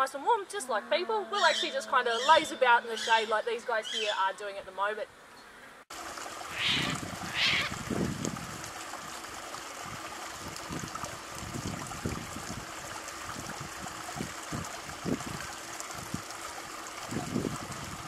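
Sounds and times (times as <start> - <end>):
trickle of running water: 5.9 - 18.0.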